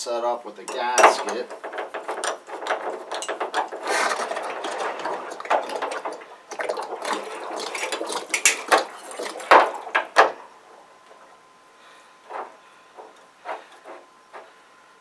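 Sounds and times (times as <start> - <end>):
metal clicking and rattling: 0.7 - 10.4.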